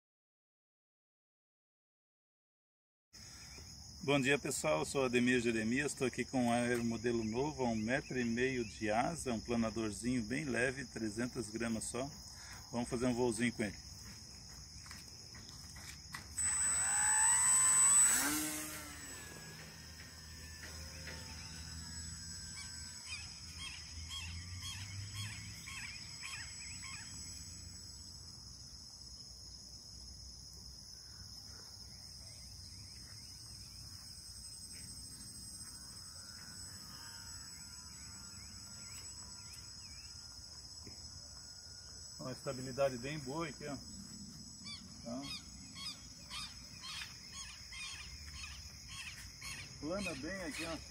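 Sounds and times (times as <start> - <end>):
rc plane electric motor and propeller: 14.9 - 28.6, 33.4 - 50.9
steady high hiss: 15.8 - 29.5, 34.1 - 50.9.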